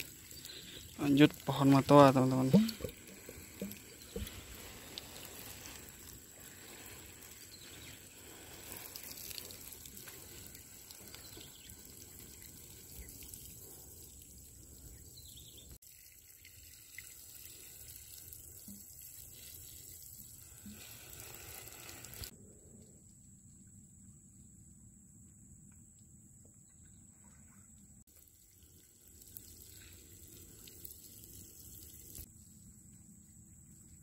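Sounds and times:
water sprinkling onto soil: 0.0 - 15.2, 15.8 - 22.3, 28.1 - 32.3.

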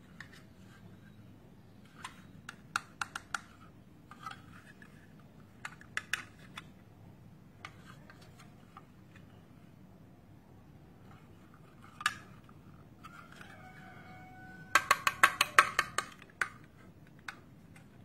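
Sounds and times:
plastic toy blocks clicking: 1.9 - 6.7, 14.7 - 18.0.

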